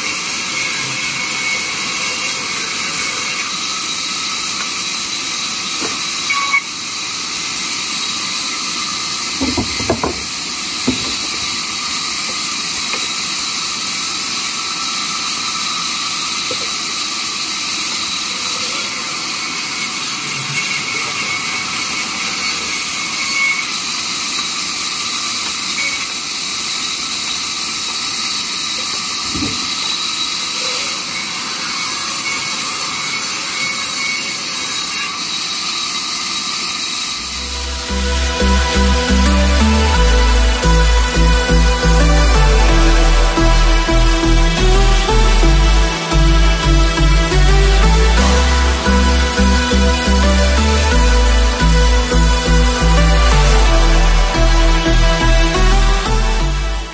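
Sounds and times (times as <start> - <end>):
band saw cutting wood: 0.0 - 56.9
wood knocks: 9.4 - 11.5.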